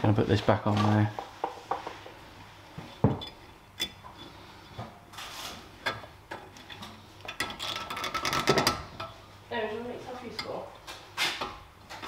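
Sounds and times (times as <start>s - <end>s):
metal scrape: 3.8s - 5.8s.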